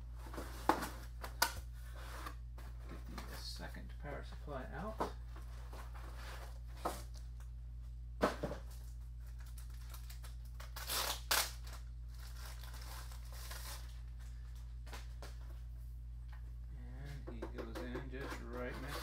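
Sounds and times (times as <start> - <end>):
steady low hum: 0.0 - 19.0
plastic bag and cardboard rustling: 8.2 - 14.6.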